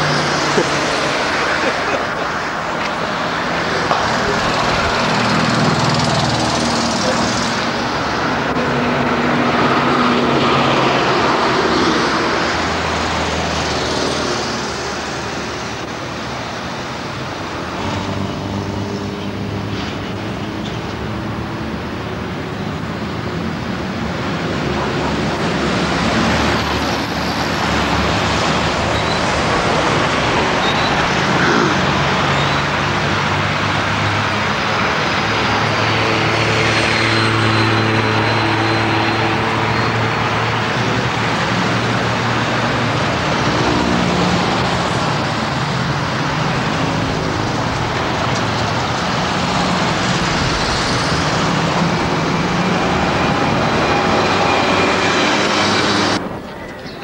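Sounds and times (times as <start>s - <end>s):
cars driving past: 0.0s - 57.0s
heavy truck engine drone: 0.0s - 57.0s.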